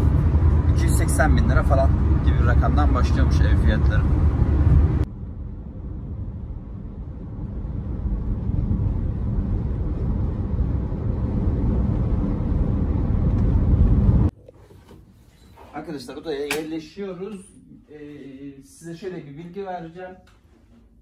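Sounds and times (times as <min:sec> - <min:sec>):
car cabin road noise: 0:00.0 - 0:14.4.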